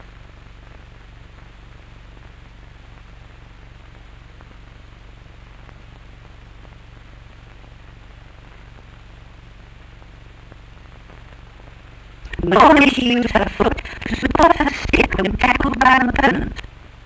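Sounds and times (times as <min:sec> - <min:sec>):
faint crackles: 0:00.0 - 0:17.0
film soundtrack hiss: 0:00.0 - 0:17.0
low hum: 0:12.2 - 0:17.0.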